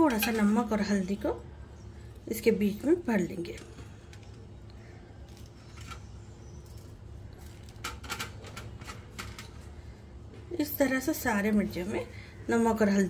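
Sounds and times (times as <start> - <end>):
low steady hum: 0.0 - 13.0
soft clicks of handling chillies: 3.3 - 10.5.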